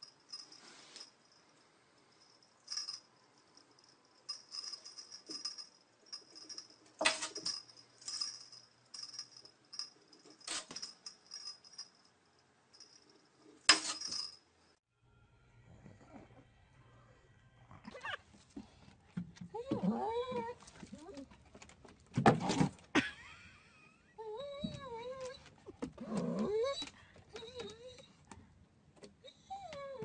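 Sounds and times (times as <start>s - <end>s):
collar jingling: 0.0s - 14.4s.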